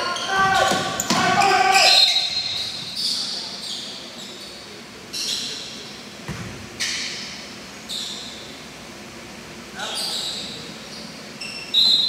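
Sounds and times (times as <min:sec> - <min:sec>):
sneakers squeaking on court: 0:00.0 - 0:08.6, 0:09.9 - 0:12.0
gym hall background noise: 0:00.0 - 0:12.0.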